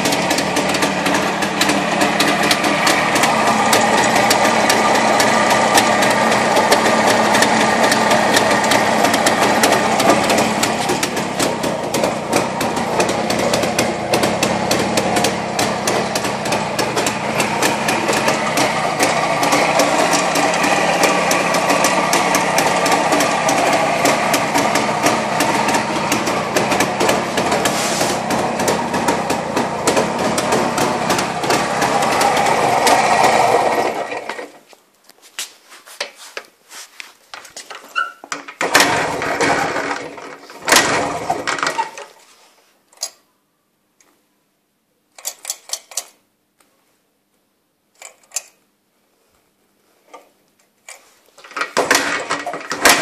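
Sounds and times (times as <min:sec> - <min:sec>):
two-stroke engine running: 0:00.0 - 0:34.6, 0:38.6 - 0:41.8, 0:51.8 - 0:53.0.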